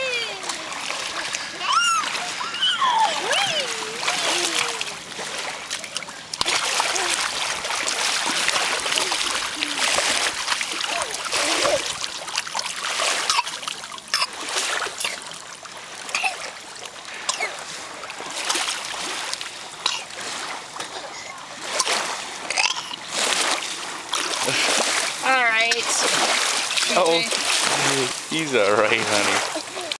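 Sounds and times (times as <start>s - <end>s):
faint voice sounds: 0.0s - 5.0s
water splashing: 0.0s - 29.9s.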